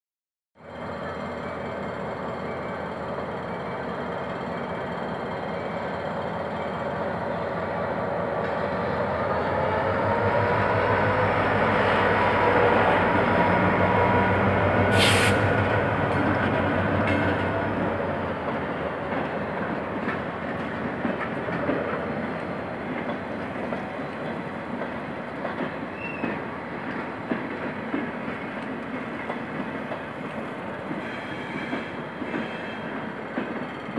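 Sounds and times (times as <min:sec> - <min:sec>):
diesel locomotive engine: 0:00.6 - 0:33.9
train wheels clicking over rail joints: 0:14.8 - 0:33.9
short hiss: 0:14.9 - 0:15.5.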